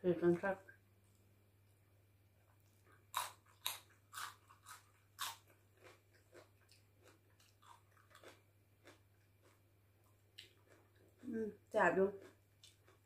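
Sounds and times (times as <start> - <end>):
person chewing crunchy vegetable: 2.6 - 13.0.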